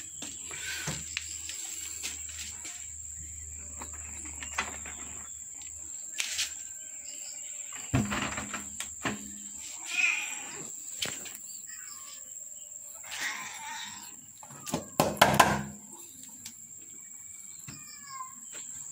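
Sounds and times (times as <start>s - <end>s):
cat meowing: 9.8s - 10.6s, 13.1s - 14.1s.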